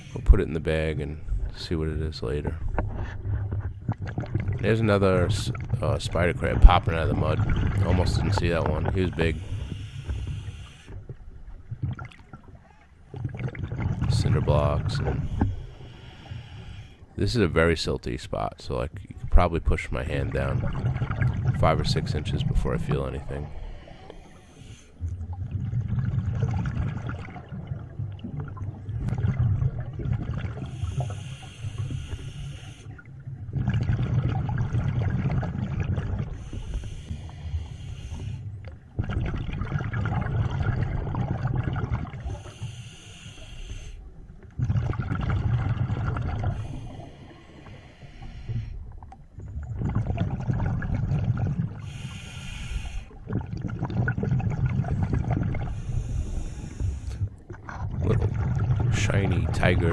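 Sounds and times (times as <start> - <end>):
exhaled bubbles rumbling: 0.0 - 16.4, 17.0 - 24.4, 25.0 - 42.6, 44.0 - 59.9
regulator hissing inhalations: 9.4 - 11.0, 15.2 - 17.0, 23.6 - 25.0, 30.7 - 32.9, 36.4 - 38.5, 42.4 - 44.0, 46.6 - 48.8, 51.8 - 53.2, 55.7 - 57.2.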